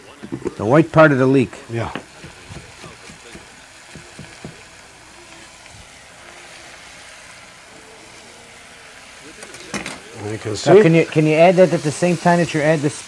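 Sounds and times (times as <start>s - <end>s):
vegetables sizzling in a pan: 0.0s - 13.0s
knife tapping on cutting board: 1.9s - 4.6s.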